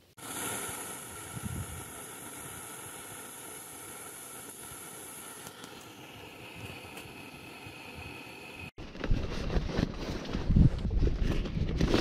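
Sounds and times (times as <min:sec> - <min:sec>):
gas stove burner hissing: 0:00.0 - 0:08.8.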